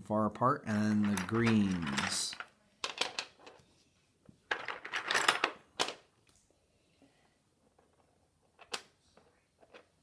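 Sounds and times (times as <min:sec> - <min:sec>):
plastic construction pieces clicking: 0:01.0 - 0:03.6.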